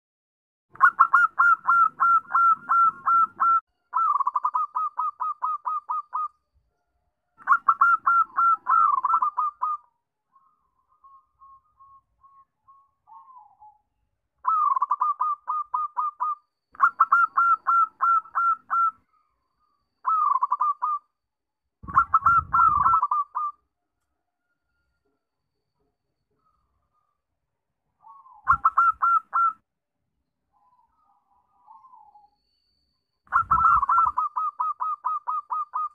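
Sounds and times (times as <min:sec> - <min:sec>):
dove cooing: 0:00.8 - 0:06.3, 0:07.4 - 0:09.9, 0:11.1 - 0:13.8, 0:14.4 - 0:19.0, 0:20.0 - 0:21.0, 0:21.8 - 0:23.6, 0:28.0 - 0:29.6, 0:33.3 - 0:35.9.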